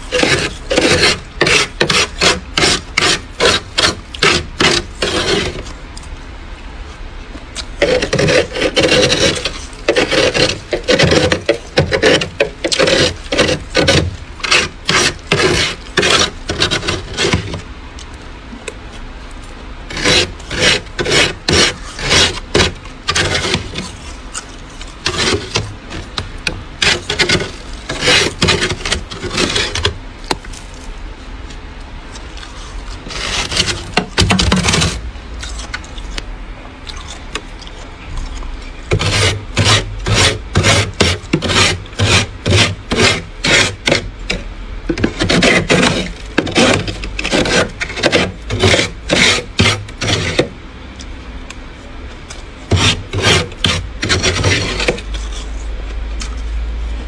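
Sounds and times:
metal spoon scraping frost: 0:00.0 - 0:06.1, 0:07.6 - 0:17.6, 0:19.4 - 0:30.9, 0:32.1 - 0:36.2, 0:36.9 - 0:50.6, 0:52.3 - 0:56.5.

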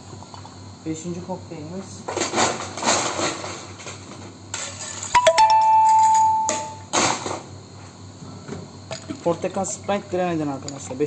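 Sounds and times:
glassware clinking: 0:05.1 - 0:06.8
high ringing tone: 0:05.1 - 0:06.9.

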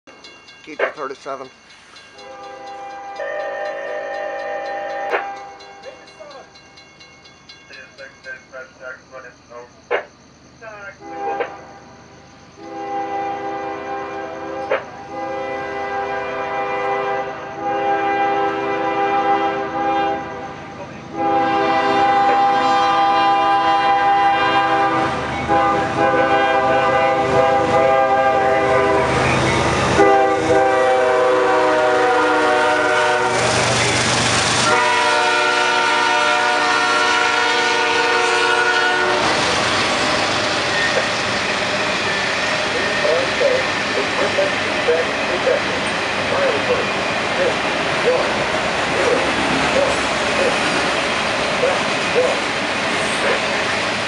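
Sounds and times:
train rumbling and clattering past: 0:00.1 - 0:54.0
locomotive air horn blasts: 0:02.2 - 0:03.4, 0:11.0 - 0:11.8, 0:12.6 - 0:20.5, 0:21.1 - 0:29.2, 0:29.9 - 0:33.6, 0:34.6 - 0:39.4.

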